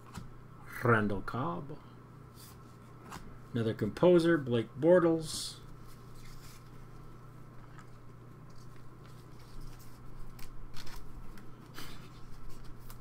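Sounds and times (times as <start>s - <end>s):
low electrical hum: 0.0s - 13.0s
cards rustling and sliding: 5.8s - 6.9s, 7.6s - 13.0s.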